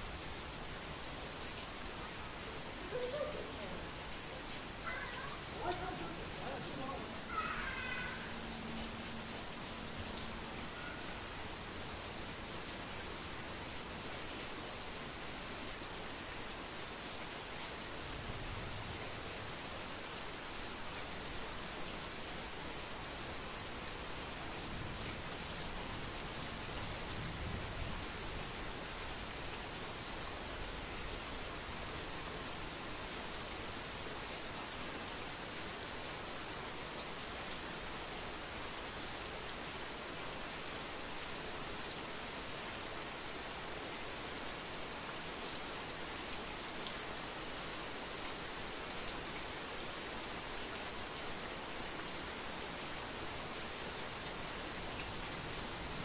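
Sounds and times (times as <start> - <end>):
heavy rain: 0.0 - 56.0
rain drop ticks: 2.8 - 13.0, 20.8 - 32.6, 36.7 - 37.7, 42.7 - 44.4, 45.0 - 47.2.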